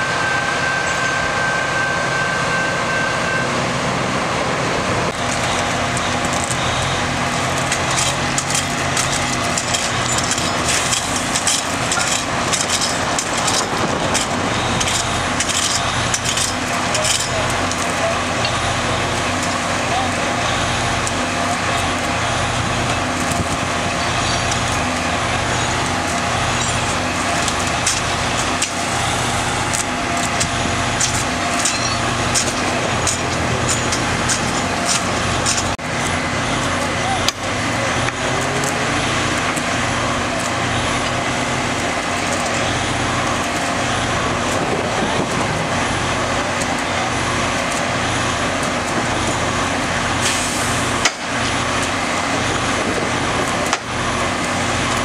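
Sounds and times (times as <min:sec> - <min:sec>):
truck engine humming: 0:00.0 - 0:55.0.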